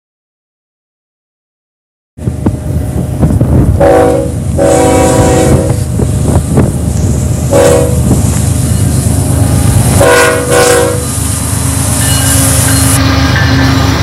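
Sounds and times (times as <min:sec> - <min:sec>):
locomotive engines rumbling: 0:02.2 - 0:14.0
locomotive air horn blasts: 0:03.8 - 0:05.9, 0:07.5 - 0:08.1, 0:10.0 - 0:11.2.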